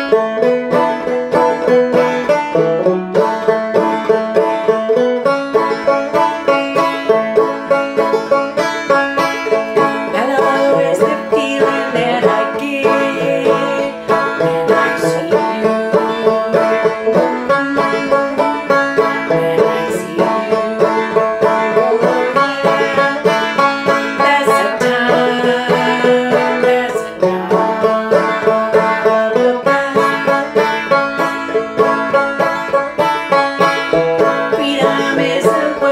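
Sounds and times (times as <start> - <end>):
banjo plucked and strummed: 0.0 - 35.9.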